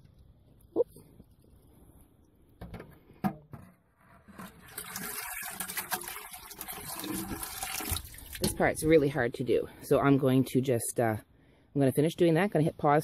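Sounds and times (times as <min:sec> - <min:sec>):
water pouring into bucket: 0:04.1 - 0:08.9.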